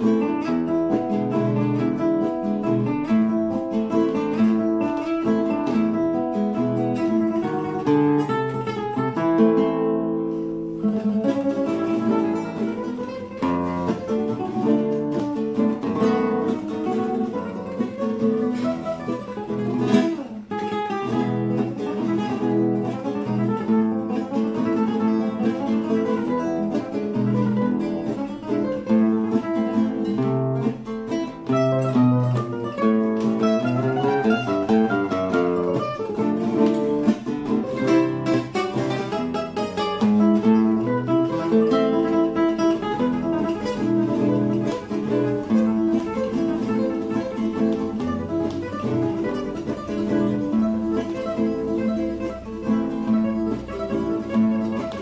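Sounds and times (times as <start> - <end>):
fingerstyle classical guitar: 0.0 - 55.0.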